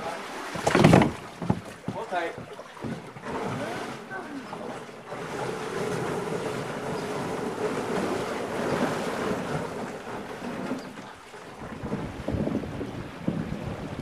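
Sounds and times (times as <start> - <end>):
water lapping around canoe hull: 0.0 - 14.0
wind noise on microphone: 11.6 - 14.0.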